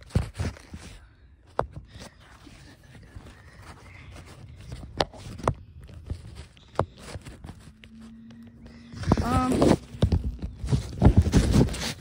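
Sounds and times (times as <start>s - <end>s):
phone handling rustling: 4.6s - 12.0s.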